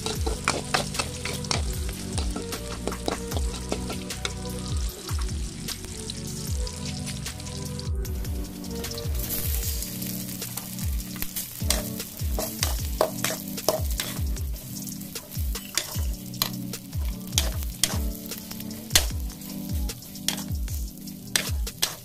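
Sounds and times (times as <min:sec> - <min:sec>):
metal spatula scraping a wok: 0:00.0 - 0:04.6, 0:09.2 - 0:22.0
oil sizzling: 0:00.0 - 0:22.0.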